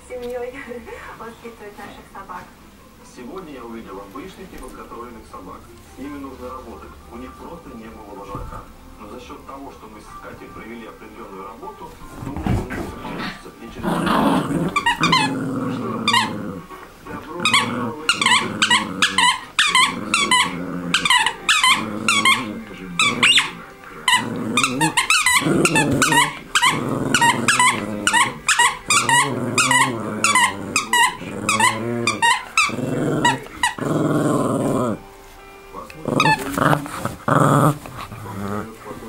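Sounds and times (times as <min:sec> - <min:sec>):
dog growling: 0:11.9 - 0:39.0
squeaky toy squeaking: 0:14.6 - 0:15.4, 0:16.0 - 0:16.4, 0:17.4 - 0:33.8, 0:36.2 - 0:37.3.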